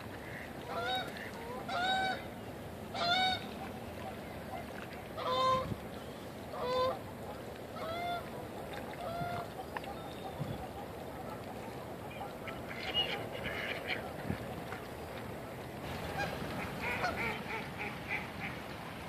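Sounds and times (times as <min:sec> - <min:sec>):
geese honking: 0:00.2 - 0:02.3, 0:02.9 - 0:05.7, 0:06.5 - 0:07.0, 0:07.8 - 0:08.3, 0:10.6 - 0:14.2, 0:15.8 - 0:18.6.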